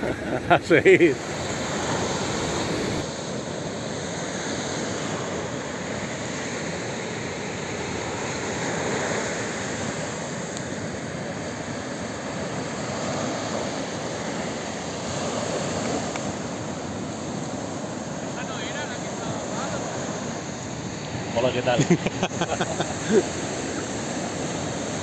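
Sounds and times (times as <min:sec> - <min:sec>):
surf breaking on beach: 0:00.0 - 0:25.0
wind on microphone: 0:01.2 - 0:03.1.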